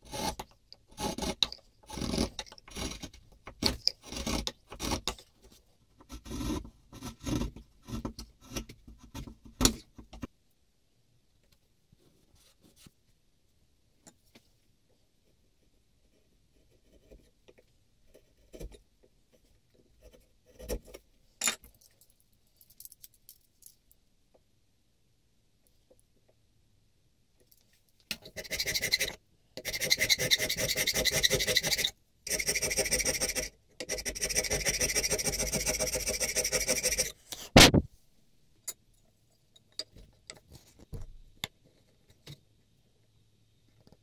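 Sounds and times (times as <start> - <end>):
chisel scraping wood: 0.1 - 5.2, 6.0 - 9.8.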